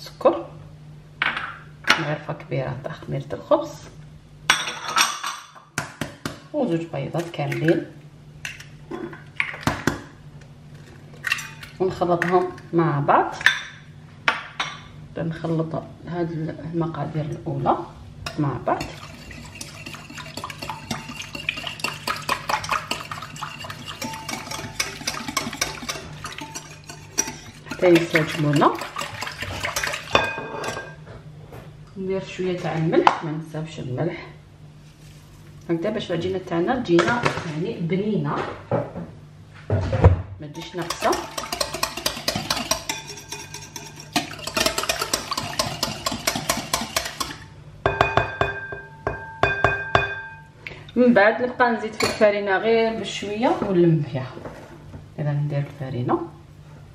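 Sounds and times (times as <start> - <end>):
liquid swishing: 18.8 - 30.2, 40.6 - 47.4
whisk clicking against glass bowl: 18.8 - 30.2, 40.6 - 50.2.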